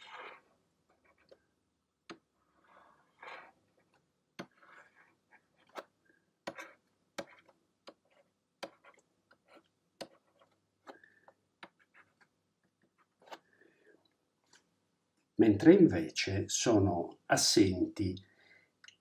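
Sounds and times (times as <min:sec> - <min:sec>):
stylus scraping on tablet: 0:00.0 - 0:01.4, 0:02.4 - 0:13.7.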